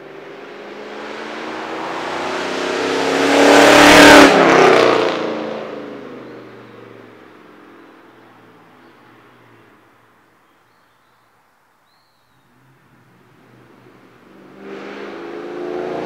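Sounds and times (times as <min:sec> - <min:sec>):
car exhaust passing at speed: 0:00.0 - 0:07.8, 0:12.5 - 0:16.0.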